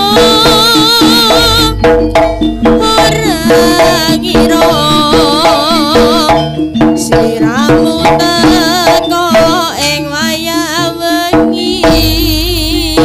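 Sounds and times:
hand drum strokes: 0:00.0 - 0:13.0
trilling melody: 0:00.0 - 0:13.0.

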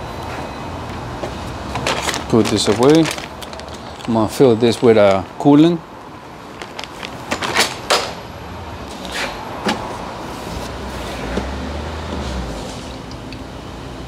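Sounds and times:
plastic jug and tools clicking: 0:01.8 - 0:05.2.

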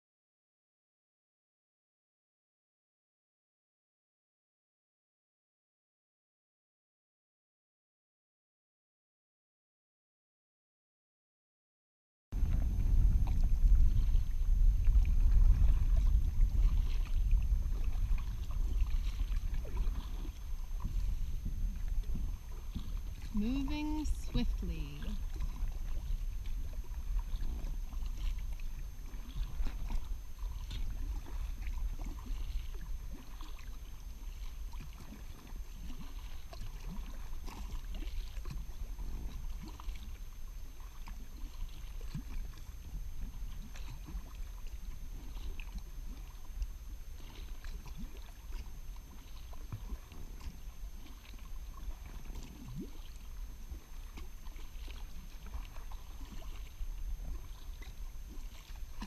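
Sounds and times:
steady low rumble: 0:12.4 - 0:34.8
water lapping and splashing: 0:12.4 - 0:59.0.

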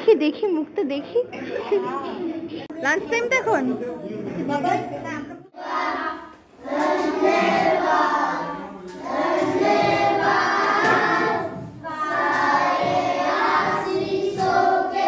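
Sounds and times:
children singing in unison: 0:05.6 - 0:15.0.

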